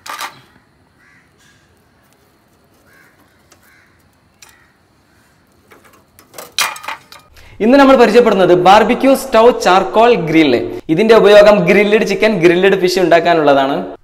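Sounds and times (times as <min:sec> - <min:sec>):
faint caw-like bird calls: 0:00.3 - 0:05.6.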